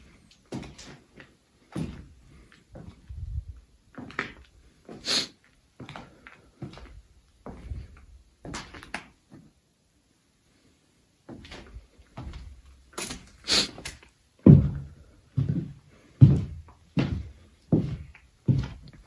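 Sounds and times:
heavy footsteps: 0.0 - 5.0, 5.8 - 8.8, 11.3 - 19.0
footsteps crunching: 11.3 - 19.0.

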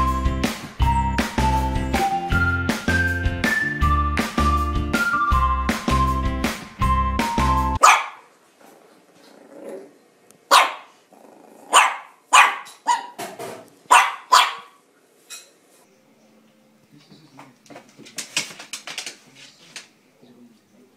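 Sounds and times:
music: 0.0 - 7.8, 15.8 - 17.3
puppy barking in sharp yaps: 7.8 - 8.3, 10.5 - 10.9, 11.7 - 13.2, 13.9 - 14.8.

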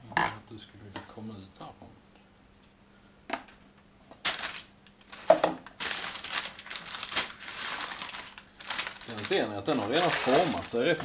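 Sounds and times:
baking paper rustling: 4.2 - 11.0.

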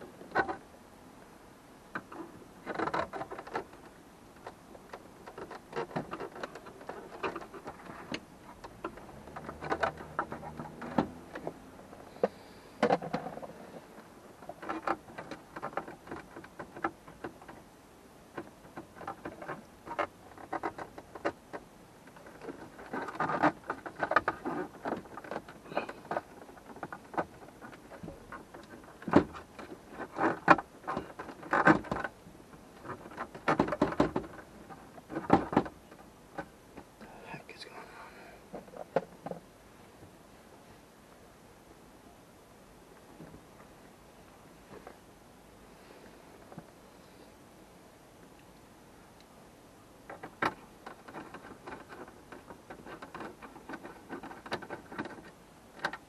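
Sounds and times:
tools clicking on dashboard trim: 4.4 - 11.6.

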